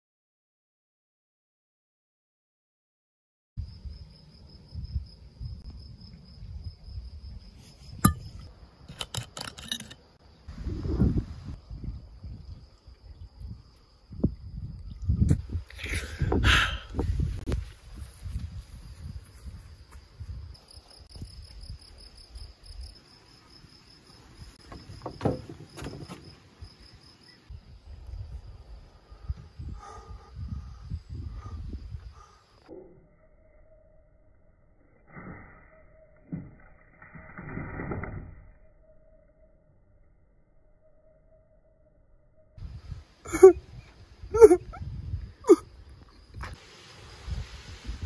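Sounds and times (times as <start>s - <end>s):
wind rumble on microphone: 3.6s - 8.4s, 10.5s - 22.9s, 27.5s - 32.4s, 42.6s - 48.0s
insects chirping: 3.6s - 48.0s
insects trilling: 42.6s - 46.6s.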